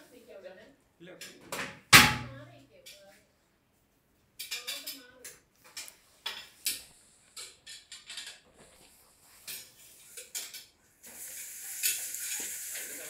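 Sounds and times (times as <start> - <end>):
clacks and scrapes on tiled floor: 4.4 - 13.0
steady high hiss: 9.2 - 13.0.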